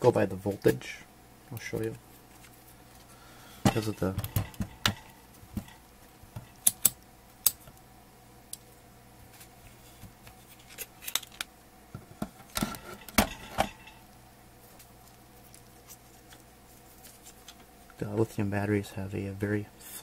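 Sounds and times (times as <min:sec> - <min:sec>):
faint steady hum: 0:00.0 - 0:20.0
multimeter clicks: 0:06.6 - 0:07.6.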